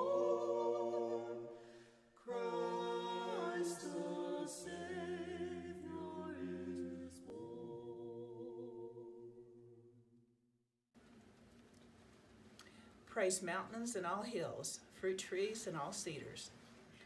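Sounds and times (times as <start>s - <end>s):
choir singing unaccompanied: 0.0s - 10.0s.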